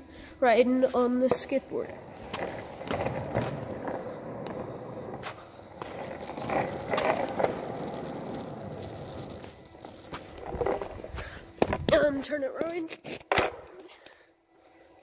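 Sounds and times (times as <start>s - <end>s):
longboard wheels rumbling on pavement: 1.8s - 11.9s.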